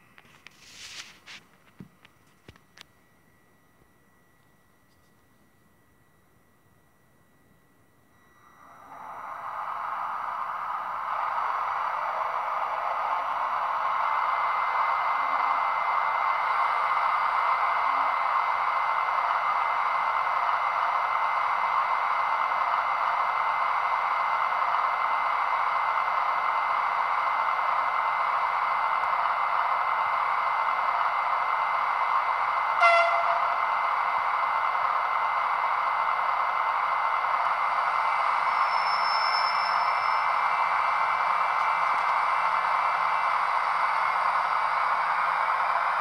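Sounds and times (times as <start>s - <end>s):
locomotive cooling fan whoosh: 8.8s - 15.5s
short horn toot: 32.8s - 33.5s.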